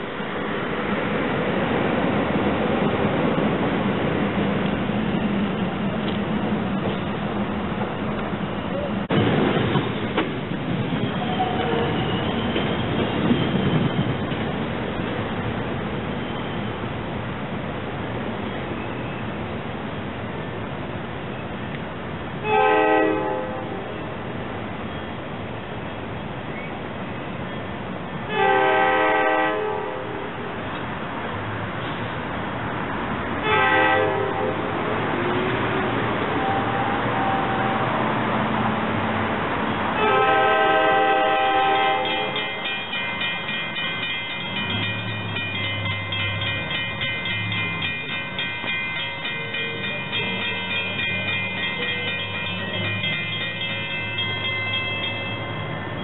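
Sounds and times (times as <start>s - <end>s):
electric train hum: 0.0s - 56.0s
crossing warning bell ringing: 5.1s - 17.1s, 40.0s - 56.0s
train horn blasts: 22.4s - 24.1s, 28.3s - 30.4s, 33.4s - 34.7s, 36.3s - 38.0s, 40.0s - 42.5s.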